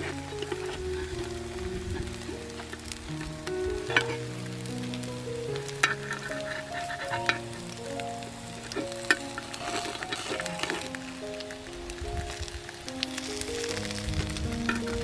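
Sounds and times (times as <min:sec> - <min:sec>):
metal utensils clicking on pan: 0:00.0 - 0:01.1, 0:05.7 - 0:07.6, 0:14.7 - 0:15.0
batter sizzling in a pan: 0:00.0 - 0:15.0
soft background music: 0:00.0 - 0:15.0.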